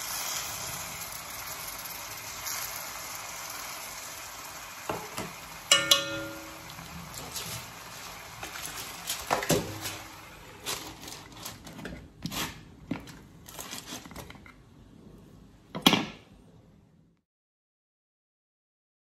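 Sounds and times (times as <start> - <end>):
aluminium foil crinkling: 6.6 - 14.5.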